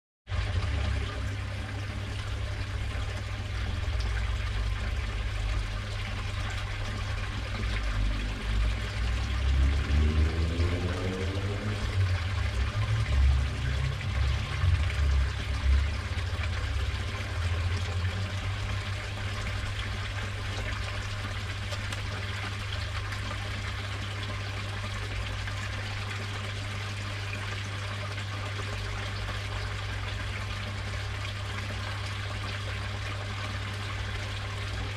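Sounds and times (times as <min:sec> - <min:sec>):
low rumble: 0:00.3 - 0:23.8
water trickling into pond: 0:00.3 - 0:34.9.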